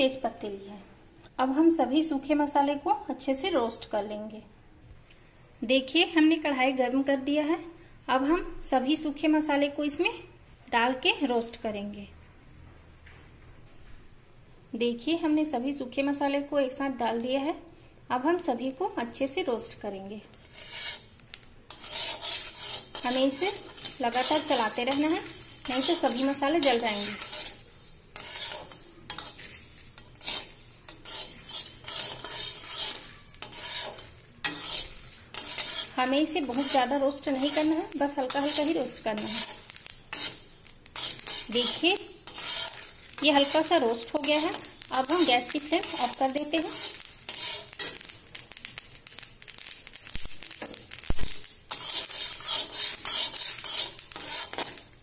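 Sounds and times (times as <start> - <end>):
metal spatula scraping a pan: 19.6 - 55.0
spices rattling over metal: 20.3 - 55.0.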